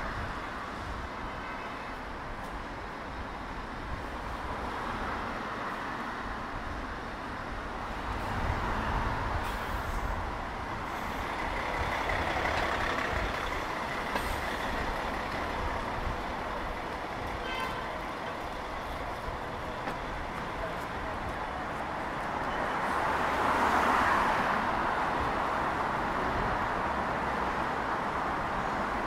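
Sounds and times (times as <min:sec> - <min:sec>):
road traffic: 0:00.0 - 0:29.0
large vehicle rumbling past: 0:08.1 - 0:17.3.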